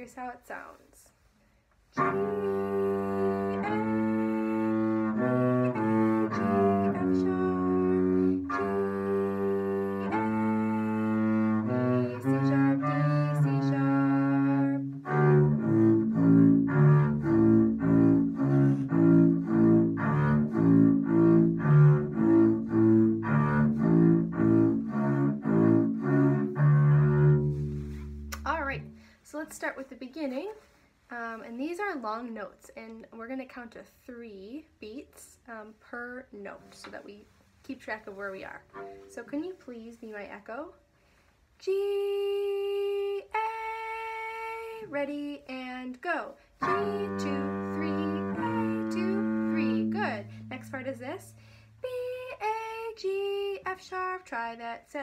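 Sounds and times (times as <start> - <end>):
bowed double bass: 2.0 - 29.1, 37.7 - 39.7, 46.6 - 52.8.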